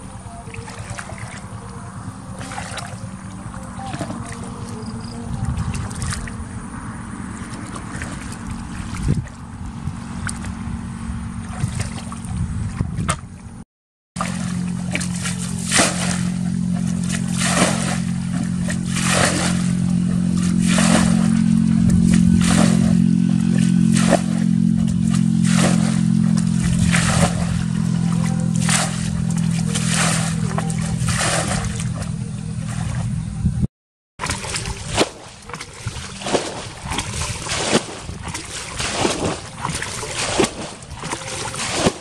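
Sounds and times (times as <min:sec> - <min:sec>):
water sloshing from a bucket: 0:00.0 - 0:06.6, 0:07.2 - 0:10.6, 0:11.3 - 0:13.5, 0:14.2 - 0:33.2, 0:34.2 - 0:42.0
steady low hum: 0:00.0 - 0:13.6, 0:14.2 - 0:42.0.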